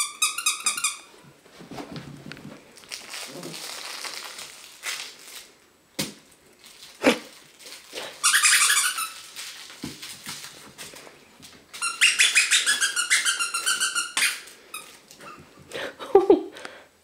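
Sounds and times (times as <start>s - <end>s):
squeaky dog toy squeaking: 0.0s - 1.1s, 8.2s - 9.2s, 11.8s - 14.9s.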